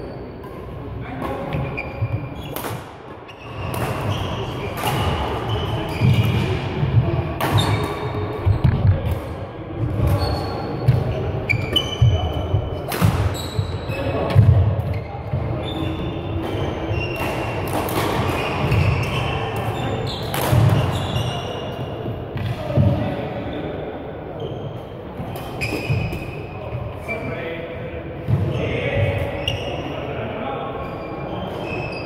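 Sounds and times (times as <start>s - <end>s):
shoes squeaking: 1.2s - 6.6s, 10.0s - 21.9s, 24.4s - 27.2s, 28.5s - 30.0s
rackets striking shuttlecock: 16.4s - 21.0s.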